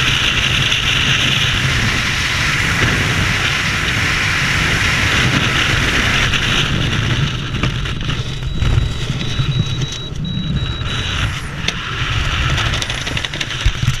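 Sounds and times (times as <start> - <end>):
wind rushing over camera: 0.0 - 14.0.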